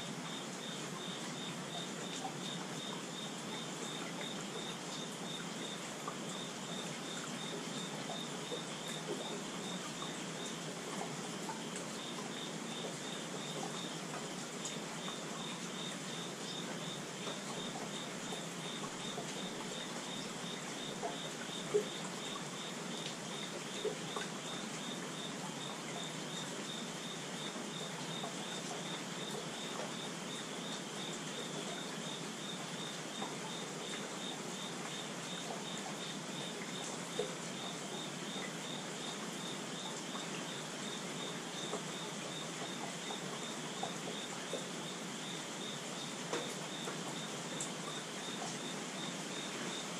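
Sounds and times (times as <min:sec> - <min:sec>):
insect pulsing chirp: 0:00.2 - 0:10.6, 0:11.3 - 0:49.9
rain on wooden deck and leaves: 0:26.4 - 0:49.9.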